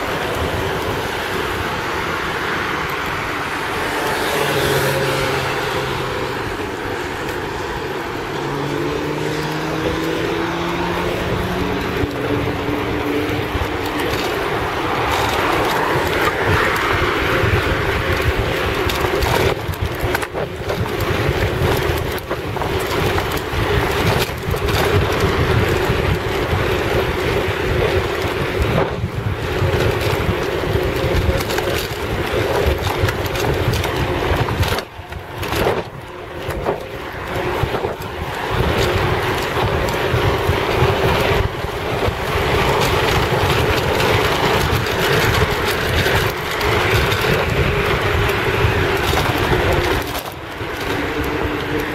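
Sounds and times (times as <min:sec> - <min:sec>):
rumbling ride noise: 0:00.0 - 0:51.9
wind buffeting microphone: 0:00.0 - 0:51.9.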